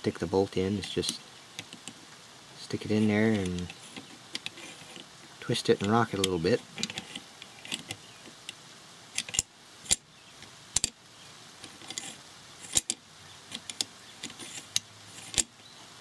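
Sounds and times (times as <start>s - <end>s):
light metal scraping: 2.6s - 8.0s, 11.6s - 15.5s
metal bolt clicking: 5.8s - 8.0s, 9.2s - 10.0s, 10.8s - 11.0s, 11.7s - 15.5s.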